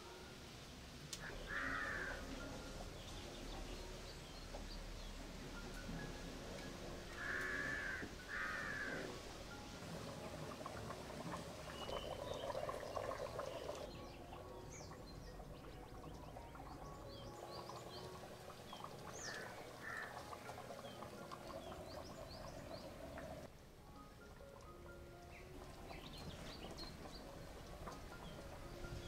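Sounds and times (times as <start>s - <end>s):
small birds chirping: 11.6s - 23.5s, 24.9s - 29.0s.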